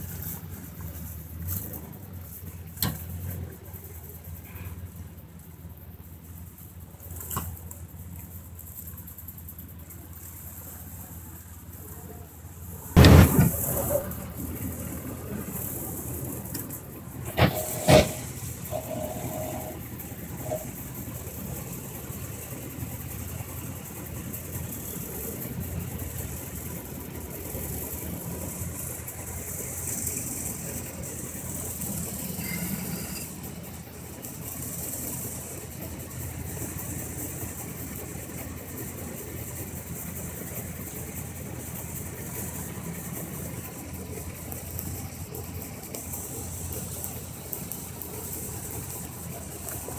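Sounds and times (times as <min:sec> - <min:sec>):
car engine running: 0:00.0 - 0:49.9
recording hiss: 0:00.0 - 0:49.9
thumps: 0:13.0 - 0:14.0
sharp bang: 0:13.0 - 0:14.1.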